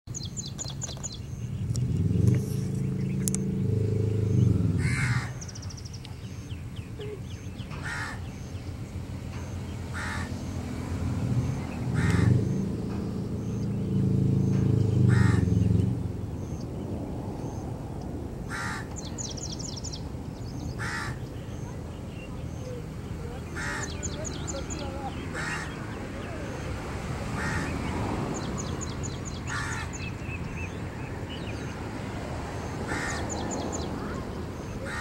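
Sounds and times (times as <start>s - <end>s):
harsh bird calls: 0.2s - 17.8s, 18.4s - 35.0s
low motor drone: 1.1s - 18.4s.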